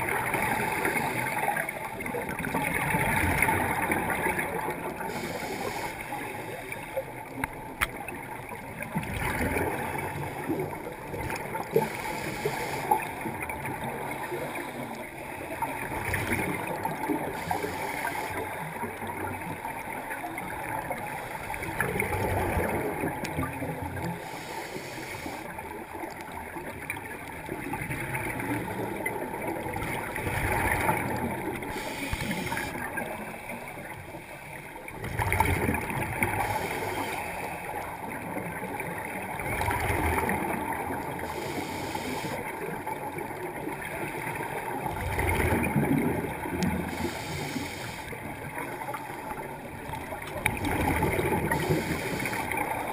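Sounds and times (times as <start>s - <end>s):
scuba regulator bubbling underwater: 49.2s - 52.9s.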